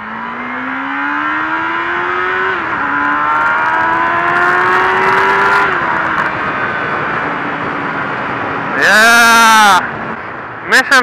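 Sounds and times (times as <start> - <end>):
motorcycle engine accelerating: 0.0 - 8.5.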